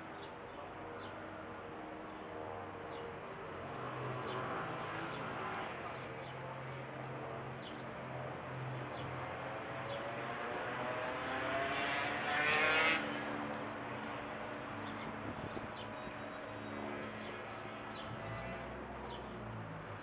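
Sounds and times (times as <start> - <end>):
street noise hum: 0.0 - 20.0
vehicle engine accelerating: 9.4 - 20.0.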